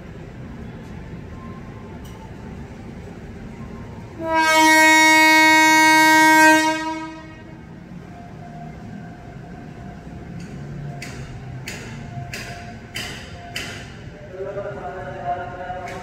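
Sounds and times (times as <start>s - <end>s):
train horn blast: 4.2s - 7.7s.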